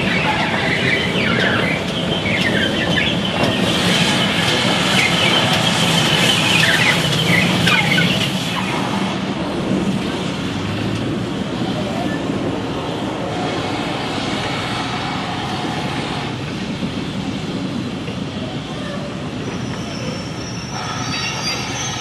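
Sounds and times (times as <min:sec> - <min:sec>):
high wheel squeaks: 0:00.0 - 0:08.9, 0:18.6 - 0:22.0
train rumbling: 0:00.0 - 0:22.0.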